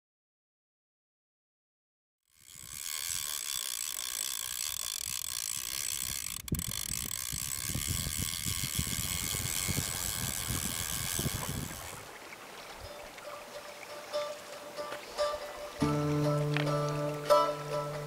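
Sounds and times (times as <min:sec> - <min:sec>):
fly reel drag buzzing: 0:02.3 - 0:18.0.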